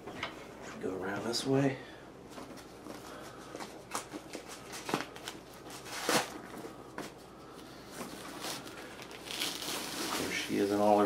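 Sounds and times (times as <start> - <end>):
protective wrap rustling: 2.5 - 6.8, 7.6 - 11.0.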